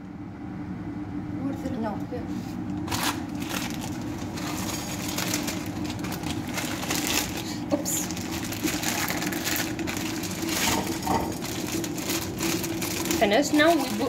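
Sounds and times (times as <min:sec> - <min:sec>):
noodles sizzling in a pot: 0:02.8 - 0:14.0.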